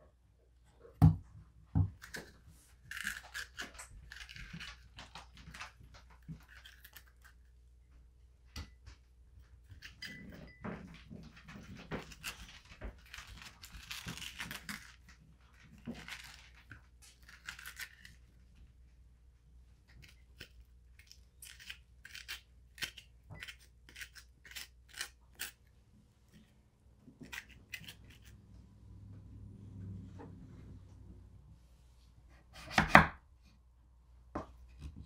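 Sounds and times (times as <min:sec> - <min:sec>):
metal spoon scraping squash: 0:02.0 - 0:04.9, 0:20.0 - 0:25.7, 0:27.2 - 0:28.4.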